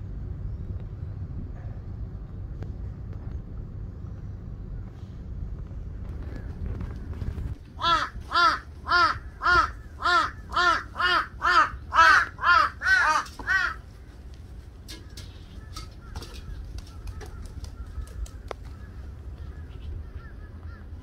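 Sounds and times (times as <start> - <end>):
crow cawing: 7.8 - 13.8, 14.9 - 21.0.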